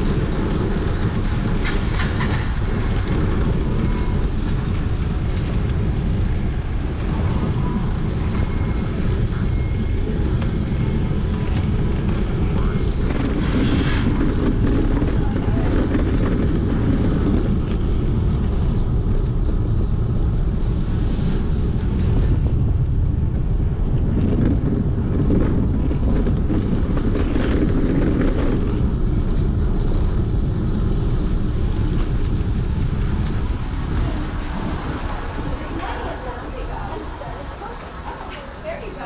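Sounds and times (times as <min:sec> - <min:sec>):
bicycle tyre noise: 0:00.0 - 0:39.0
wind rumble on microphone: 0:00.0 - 0:39.0.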